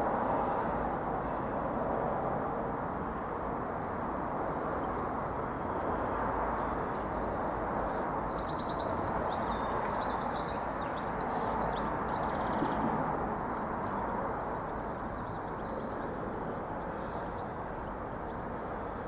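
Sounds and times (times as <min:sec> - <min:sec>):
small birds chirping: 0:05.8 - 0:19.0.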